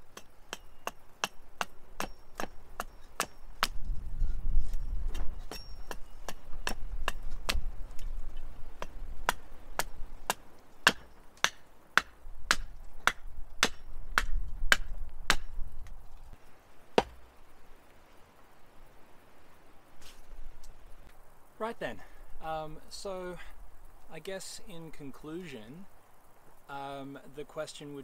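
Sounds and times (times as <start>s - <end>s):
hatchet chopping wood: 0.1s - 3.8s, 5.1s - 8.1s, 8.8s - 15.6s, 17.0s - 17.2s.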